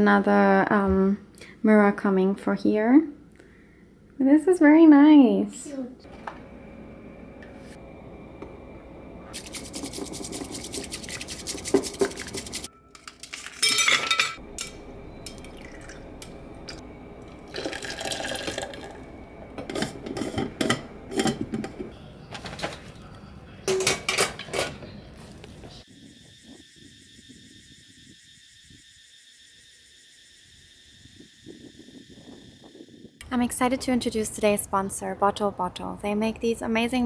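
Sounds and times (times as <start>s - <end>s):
cutlery and dishes clinking: 13.0s - 14.4s, 23.7s - 24.8s
liquid being poured: 15.2s - 19.2s.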